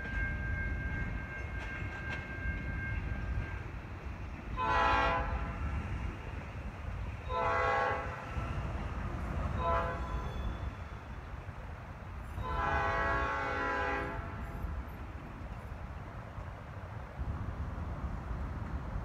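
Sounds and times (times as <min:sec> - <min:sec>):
locomotive air horn blasts: 0:04.6 - 0:05.8, 0:07.3 - 0:08.7, 0:09.5 - 0:10.3, 0:12.4 - 0:14.5.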